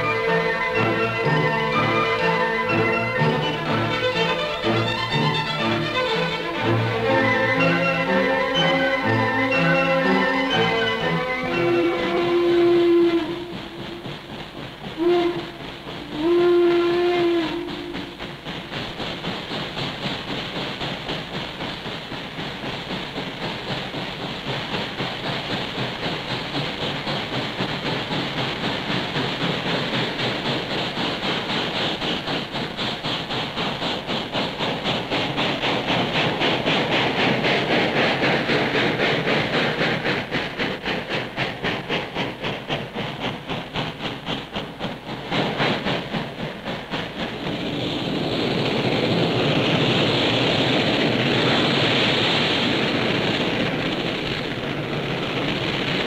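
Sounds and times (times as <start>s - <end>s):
hissing steam: 0.0s - 56.0s
steady rushing noise: 0.0s - 56.0s
steam locomotive exhaust chuffing: 0.0s - 56.0s.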